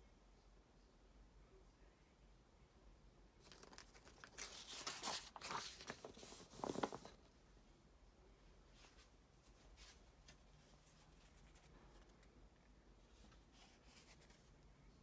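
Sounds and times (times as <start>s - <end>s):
book pages flipping: 3.4s - 7.3s, 13.1s - 14.5s.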